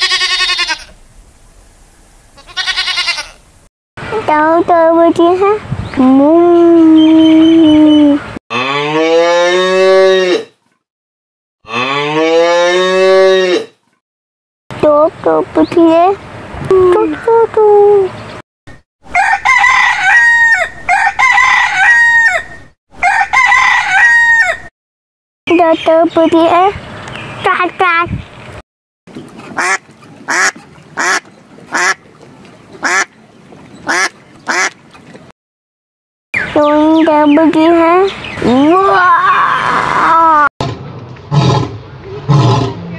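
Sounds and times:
cow mooing: 0:08.5 - 0:10.5, 0:11.6 - 0:13.7
duck quacking: 0:29.5 - 0:32.0, 0:32.8 - 0:33.1, 0:33.8 - 0:34.8.

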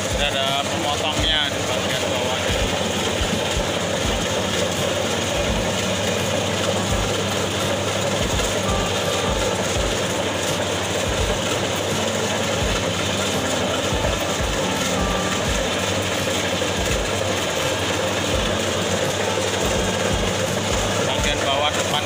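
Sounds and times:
low mechanical thumps: 0:00.0 - 0:07.4, 0:19.6 - 0:21.5
combine harvester running: 0:00.0 - 0:22.0.

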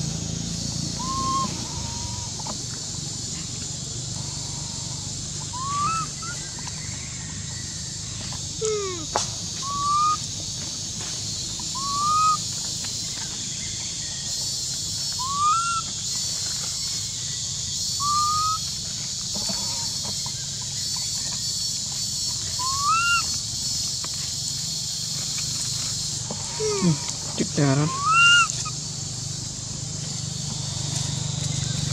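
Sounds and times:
baby monkey coo calls: 0:00.9 - 0:02.6, 0:04.2 - 0:06.9, 0:08.6 - 0:10.4, 0:11.7 - 0:12.6, 0:15.1 - 0:16.1, 0:17.8 - 0:21.1, 0:22.2 - 0:23.5, 0:26.2 - 0:28.8.

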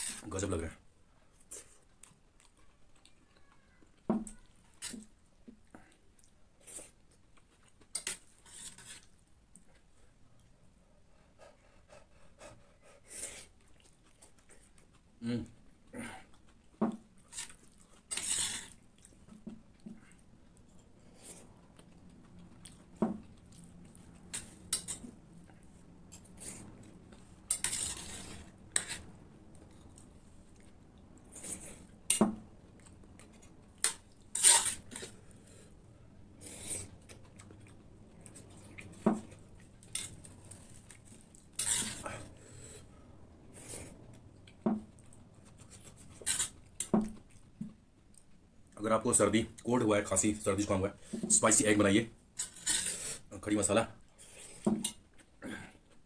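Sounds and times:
spoon scraping plate: 0:08.0 - 0:09.1, 0:18.1 - 0:18.8, 0:27.5 - 0:29.2, 0:33.8 - 0:35.2, 0:41.6 - 0:42.2, 0:45.7 - 0:46.9, 0:52.4 - 0:53.2.

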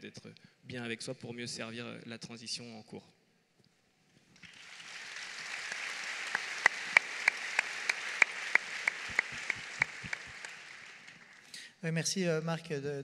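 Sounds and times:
audience applauding: 0:04.4 - 0:11.6
hands clapping close: 0:04.4 - 0:11.6.

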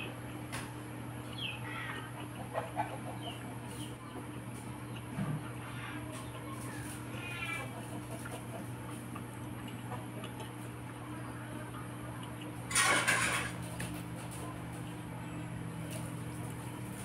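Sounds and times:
chewing and mouth clicks: 0:03.3 - 0:05.2, 0:07.8 - 0:11.1, 0:11.7 - 0:12.6.

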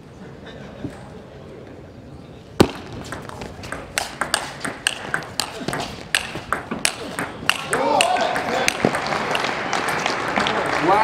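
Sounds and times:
table tennis ball clicks: 0:02.6 - 0:09.5.

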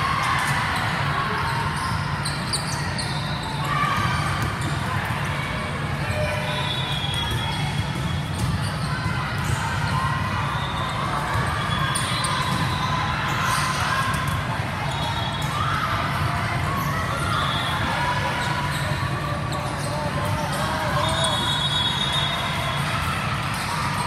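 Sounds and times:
hum of voices in hall: 0:00.0 - 0:24.0
sneaker squeaks: 0:00.1 - 0:04.9, 0:06.1 - 0:24.0
volleyballs slapping and bouncing: 0:04.1 - 0:05.6.

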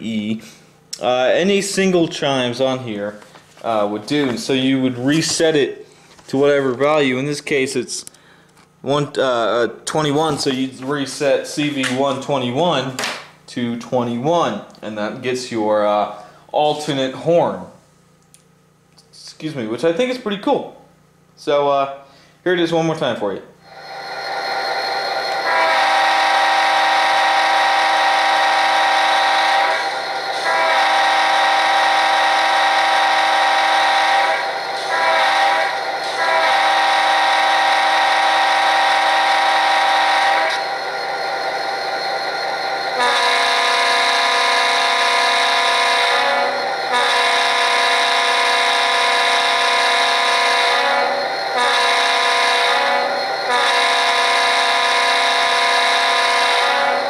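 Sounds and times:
differently pitched horn: 0:23.7 - 0:57.0
locomotive air horn from small speaker: 0:25.4 - 0:40.6, 0:43.0 - 0:57.0.

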